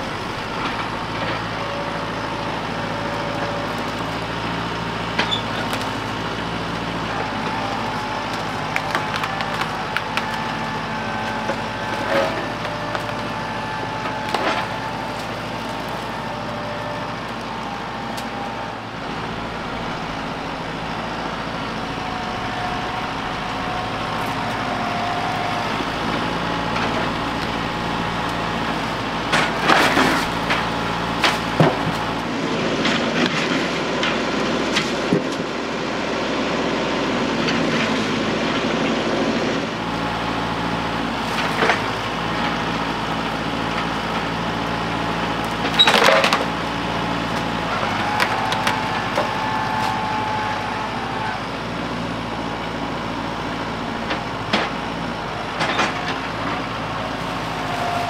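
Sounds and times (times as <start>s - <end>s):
tractor engine running: 0.0s - 58.0s
wood cracking and knocking: 5.0s - 21.0s, 21.7s - 34.1s, 41.0s - 50.5s.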